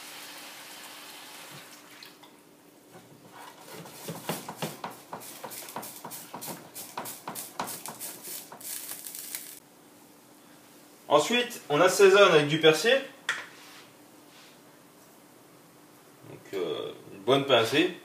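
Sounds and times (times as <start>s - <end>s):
liquid sizzling in pan: 4.9s - 9.6s.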